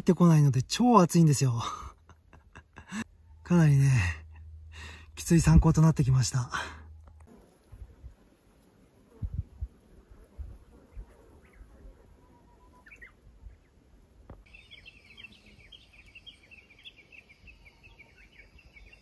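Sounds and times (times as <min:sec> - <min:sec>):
bird-like calls: 0:10.9 - 0:13.8.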